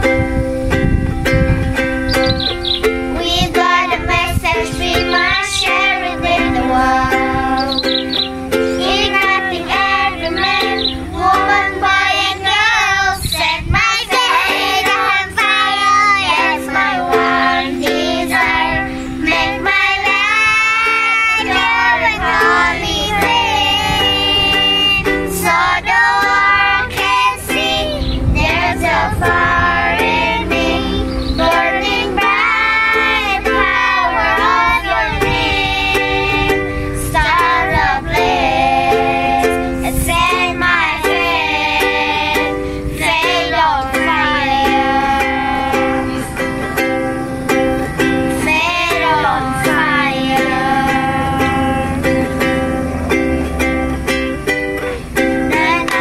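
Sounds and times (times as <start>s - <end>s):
instrumental accompaniment: 0.0s - 56.0s
child singing: 2.1s - 52.8s, 54.8s - 56.0s.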